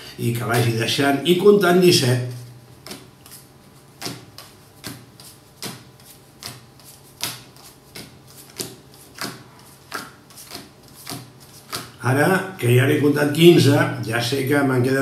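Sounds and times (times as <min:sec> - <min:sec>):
playing cards slapping on table: 0:02.8 - 0:12.0.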